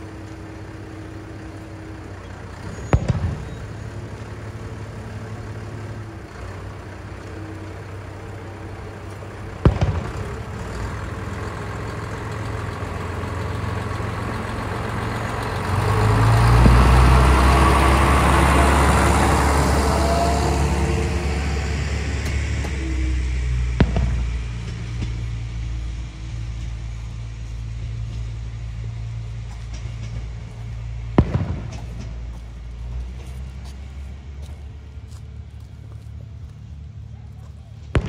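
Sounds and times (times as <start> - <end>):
diesel railcar engine: 0.0 - 38.0
firework bangs: 2.7 - 3.9, 9.6 - 10.7, 23.6 - 25.2, 31.1 - 32.3.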